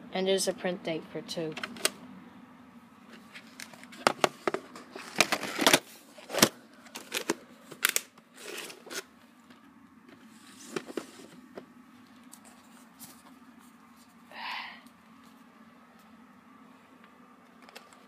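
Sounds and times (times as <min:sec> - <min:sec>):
tape case clicks and rustling: 0:01.6 - 0:02.0, 0:03.5 - 0:09.6.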